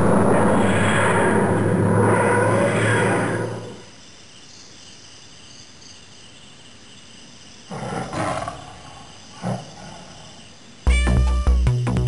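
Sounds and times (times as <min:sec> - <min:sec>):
lion roaring: 0:00.0 - 0:03.9, 0:07.7 - 0:10.4.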